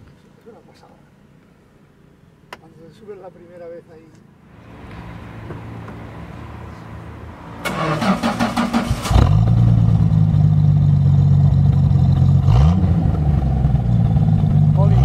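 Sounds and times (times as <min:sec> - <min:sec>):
car engine idling: 0:04.6 - 0:15.0
engine starter cranking: 0:07.6 - 0:09.6.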